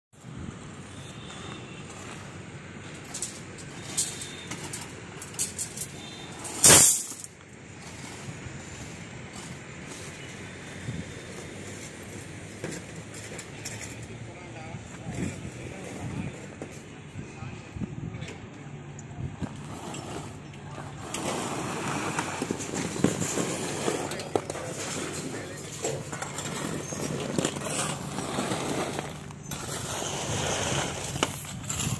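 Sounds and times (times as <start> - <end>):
outdoor background noise: 0.1 - 31.9
crunching on concrete rubble: 19.4 - 31.9.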